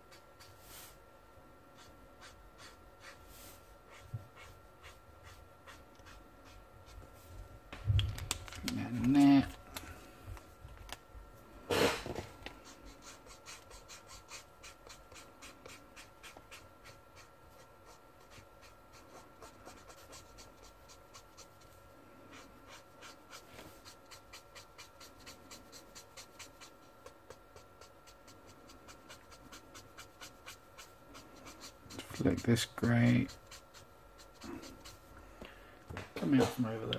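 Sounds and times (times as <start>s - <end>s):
marker scratching on paper: 1.8s - 7.1s, 12.6s - 35.1s.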